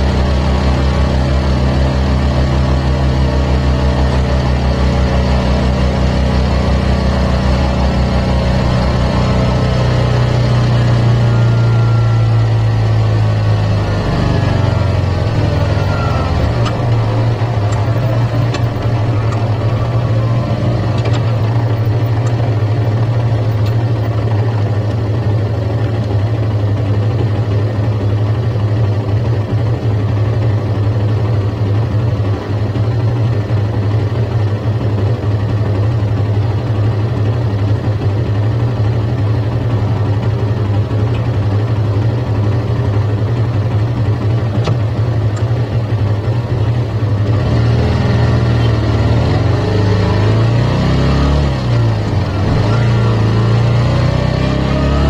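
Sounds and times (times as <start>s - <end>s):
motorcycle engine idling: 0.0s - 47.4s.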